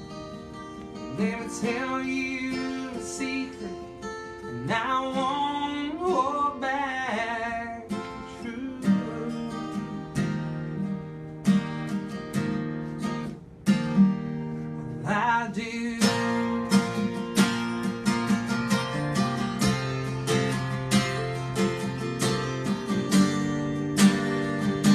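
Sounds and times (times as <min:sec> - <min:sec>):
acoustic guitar strumming: 0:00.0 - 0:24.9
person singing: 0:01.0 - 0:11.0, 0:14.9 - 0:16.6.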